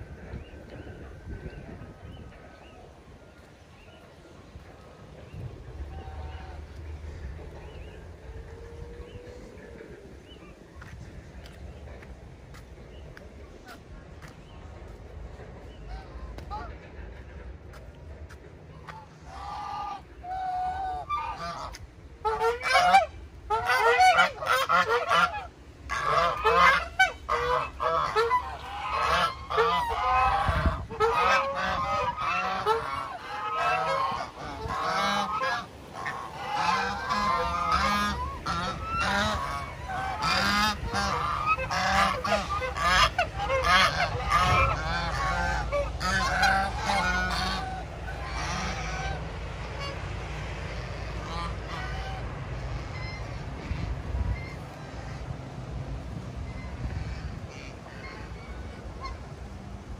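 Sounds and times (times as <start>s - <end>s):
flock of birds calling: 18.7s - 50.0s.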